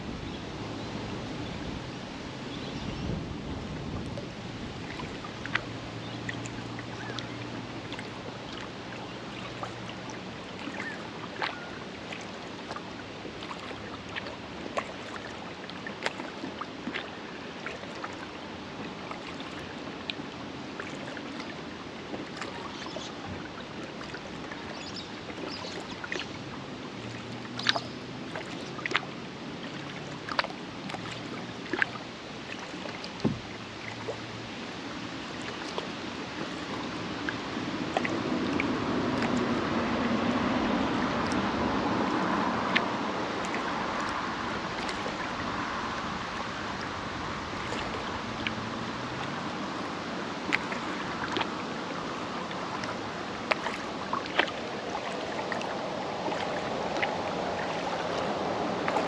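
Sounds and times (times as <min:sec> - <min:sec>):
paddle splashing water: 0:00.0 - 0:59.0
lapping water: 0:04.8 - 0:59.0
bird calling: 0:10.7 - 0:11.8.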